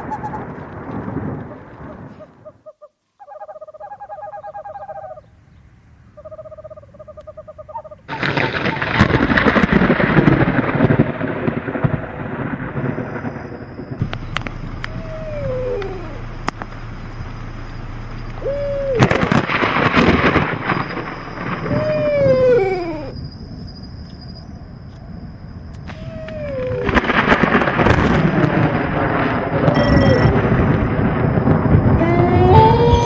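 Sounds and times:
thunder rumbling: 0.0s - 2.6s, 8.1s - 33.0s
short falling-pitch calls: 14.2s - 16.4s, 18.2s - 19.4s, 20.6s - 23.2s, 31.9s - 33.0s.

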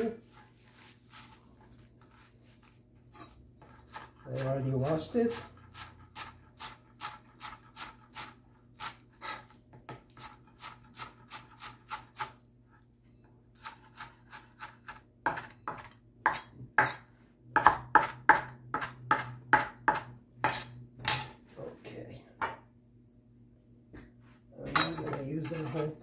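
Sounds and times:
knife chopping on plastic board: 13.6s - 21.3s.

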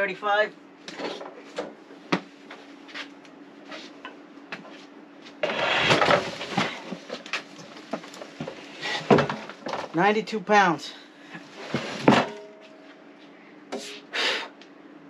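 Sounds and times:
heavy thump and scrape: 5.4s - 7.1s, 11.6s - 12.4s.

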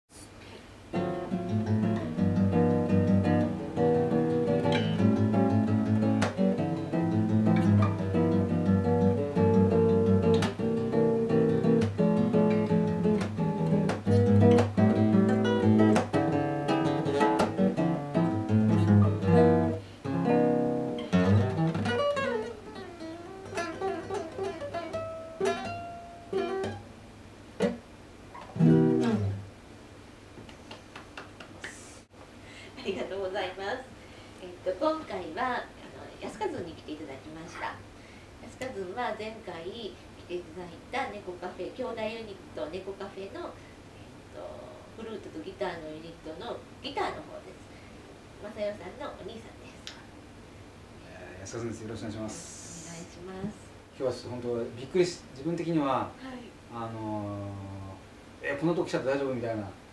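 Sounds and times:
acoustic guitar: 0.9s - 27.0s, 27.6s - 29.5s.

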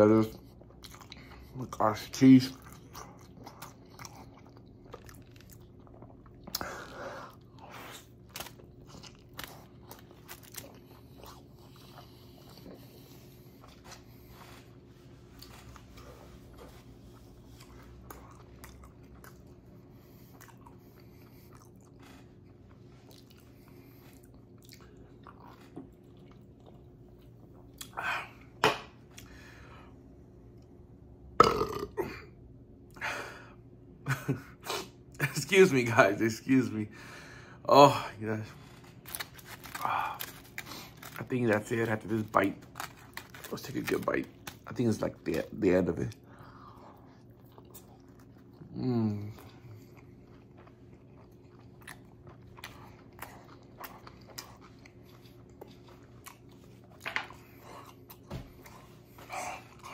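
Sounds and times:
faint steady hum: 0.0s - 59.9s
chewing with wet mouth clicks: 2.5s - 6.7s, 17.6s - 28.0s, 49.4s - 59.9s
loud burp: 31.4s - 32.3s.

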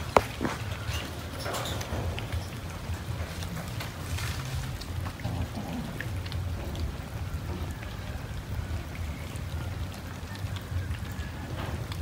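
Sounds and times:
cats chewing: 0.0s - 9.2s.

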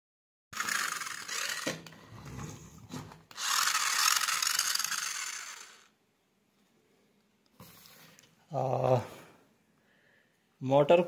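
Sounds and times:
toy car motor whirring: 0.6s - 2.0s, 3.3s - 6.0s.

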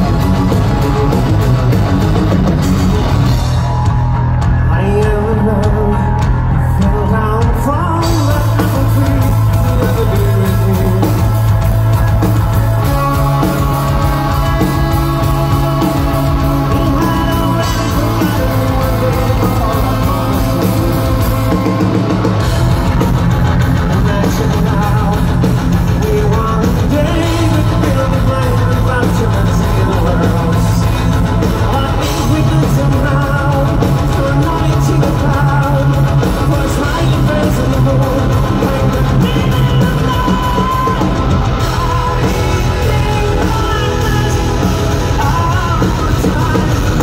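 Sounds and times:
man singing lead vocals: 0.0s - 47.0s
metal band playing: 0.0s - 47.0s.

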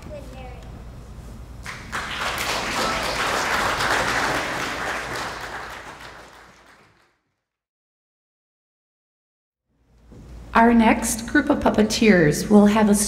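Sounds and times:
audience clapping: 1.6s - 7.4s.

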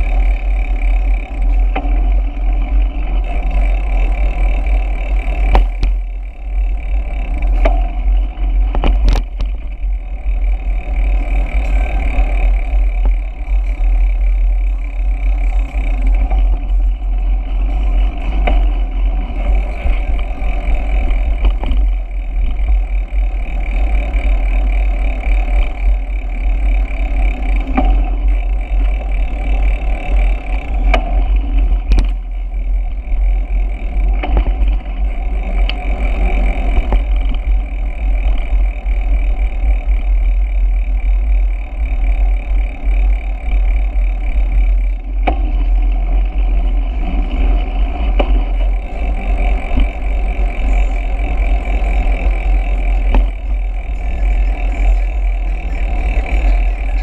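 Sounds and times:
road rumble: 0.0s - 57.0s
sharp knocks from road bumps: 5.4s - 6.1s, 7.4s - 9.7s, 45.1s - 45.8s, 53.0s - 53.5s.

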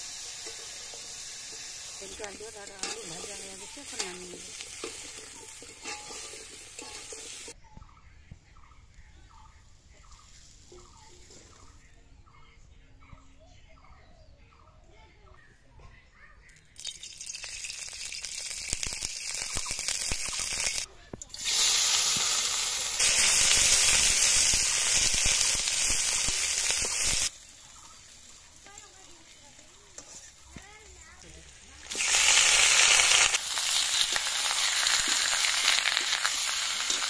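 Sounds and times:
crackling hiss of heating wok: 0.0s - 7.6s, 17.3s - 37.0s
oil sizzling in a wok: 0.0s - 7.6s, 10.1s - 11.7s, 16.8s - 37.0s.

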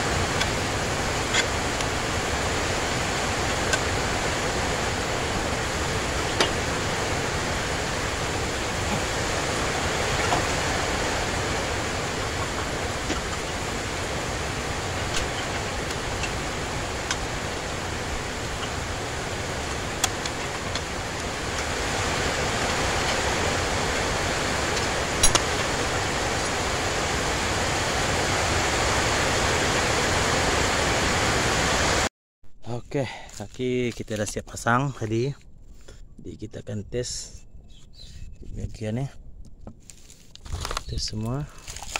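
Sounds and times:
steady hiss: 0.0s - 32.0s.

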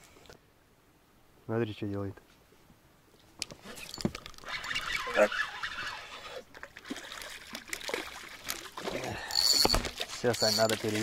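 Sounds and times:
fish splashing in water: 6.3s - 11.0s.

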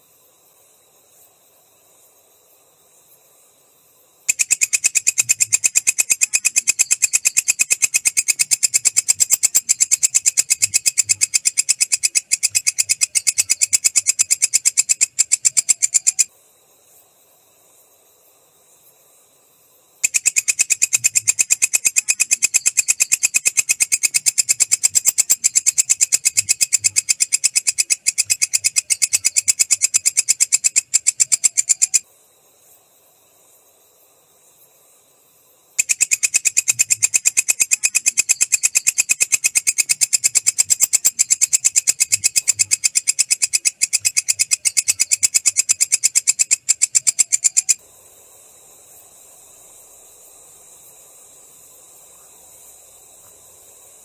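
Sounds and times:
faint hiss: 0.0s - 54.0s
katydid ticking: 4.3s - 16.3s, 20.0s - 32.0s, 35.8s - 47.8s.

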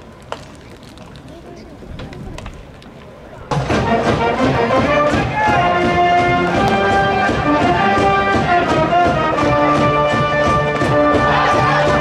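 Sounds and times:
brass band music: 3.5s - 12.0s
drum beat: 3.5s - 12.0s.

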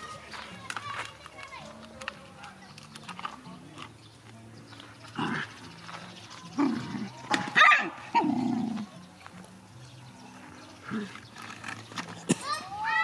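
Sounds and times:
dogs barking while play-fighting: 6.7s - 8.7s.

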